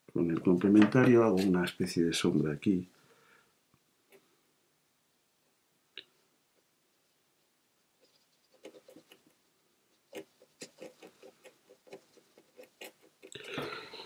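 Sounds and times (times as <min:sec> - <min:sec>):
brush scrubbing on paper: 0:08.0 - 0:09.3, 0:10.1 - 0:13.3.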